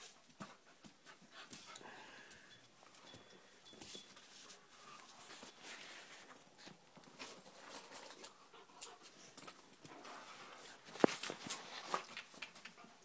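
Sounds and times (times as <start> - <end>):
dogs scuffling on a hard floor: 3.1 - 12.9.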